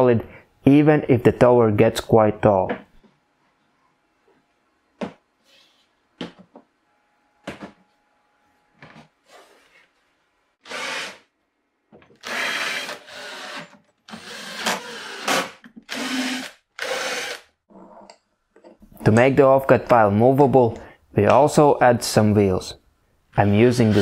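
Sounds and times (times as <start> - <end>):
cordless drill drilling wood: 10.6 - 11.2, 12.2 - 17.4.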